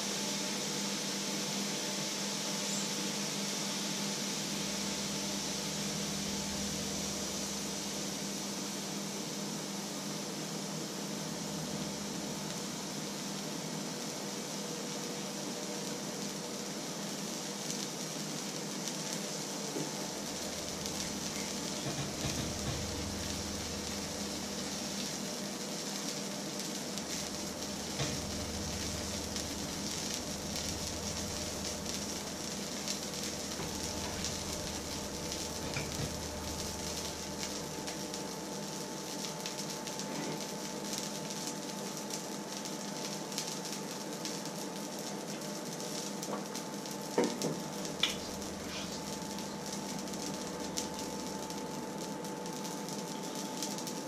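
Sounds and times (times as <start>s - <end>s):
oil sizzling in a pan: 0.0s - 54.0s
faint hum: 2.6s - 13.5s, 19.3s - 41.0s, 47.7s - 54.0s.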